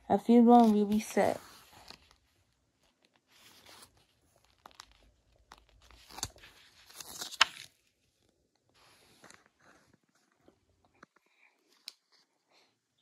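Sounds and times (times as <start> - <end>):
comic book pages rustling: 0.2 - 12.3
sharp paper crackles: 2.9 - 7.8.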